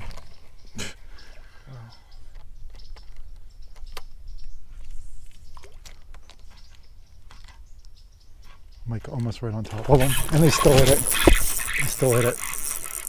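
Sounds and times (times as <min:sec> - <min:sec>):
fishing reel clicks and taps: 0:10.1 - 0:13.0.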